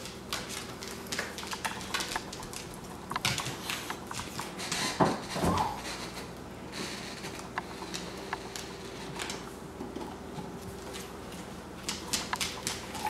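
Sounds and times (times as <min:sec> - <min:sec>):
dog claws clicking on tile: 0:00.0 - 0:05.0, 0:11.8 - 0:13.0.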